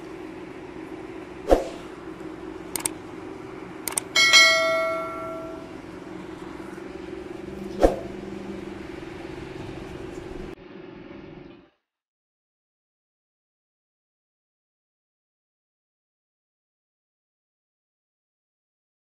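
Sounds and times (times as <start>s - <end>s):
steady low hum: 0.0s - 11.6s
sharp clicks: 2.7s - 3.0s, 3.8s - 4.1s
bell ding: 4.2s - 5.8s.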